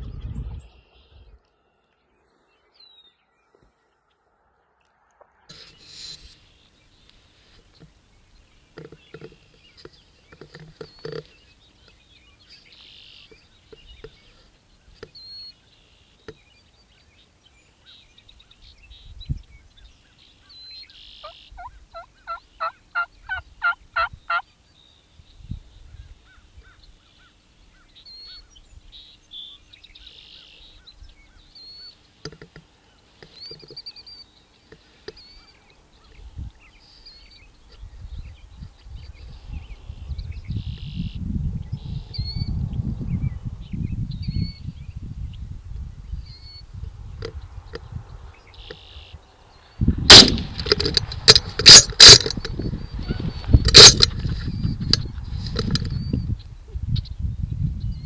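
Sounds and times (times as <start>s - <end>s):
songbirds chirping: 0.0s - 58.0s
turkey yelping: 21.2s - 24.4s.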